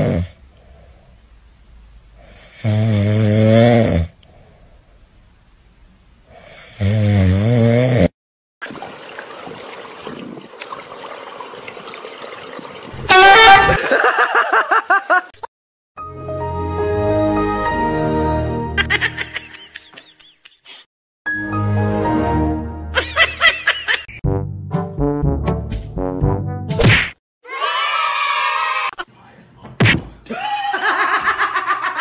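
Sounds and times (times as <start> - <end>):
cat snoring: 0.0 - 0.4, 2.2 - 4.2
loud high cry: 27.4 - 29.0.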